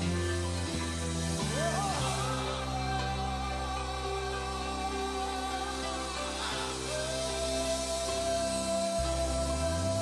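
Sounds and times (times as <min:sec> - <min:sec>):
live band playing slow chords: 0:00.0 - 0:10.0.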